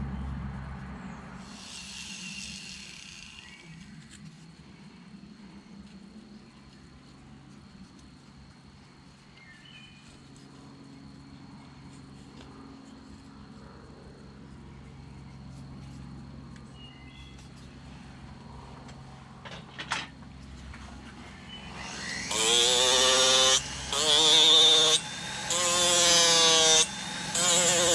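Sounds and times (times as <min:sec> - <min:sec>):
rotary tool grinding wood: 0:01.4 - 0:04.4, 0:21.4 - 0:27.9.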